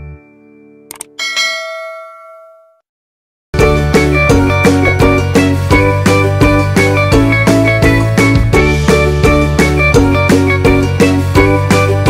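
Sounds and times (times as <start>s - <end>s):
instrumental background music: 3.6s - 12.0s.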